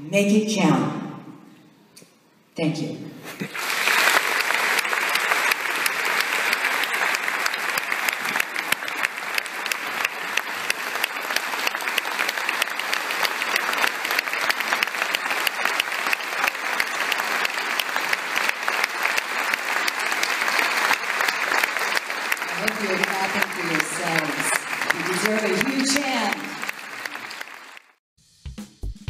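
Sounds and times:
large audience applauding: 0:03.4 - 0:28.0.

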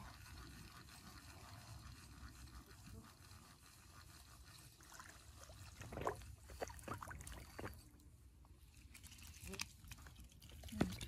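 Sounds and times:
faint fish splashing: 0:04.8 - 0:07.8.

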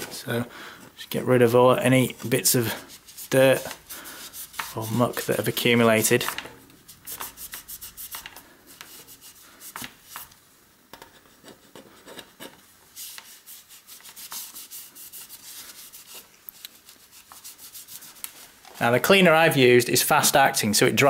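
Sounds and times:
cloth rubbing on bike frame: 0:01.4 - 0:10.4, 0:12.9 - 0:19.2.

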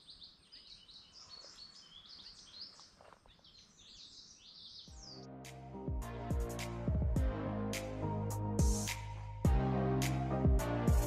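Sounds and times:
songbirds chirping: 0:00.0 - 0:05.8
background music: 0:05.0 - 0:11.0.

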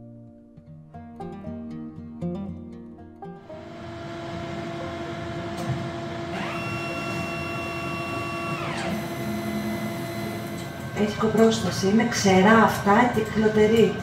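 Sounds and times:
motor whirring: 0:03.5 - 0:11.4
x-ray equipment humming: 0:03.5 - 0:14.0.

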